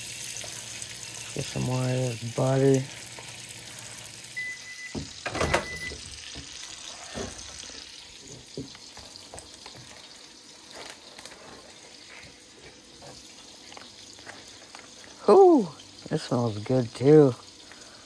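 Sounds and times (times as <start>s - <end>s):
steak sizzling in a frying pan: 0.0s - 18.0s
microwave beeping: 4.2s - 6.6s
microwave door and tray clunks: 4.9s - 6.1s.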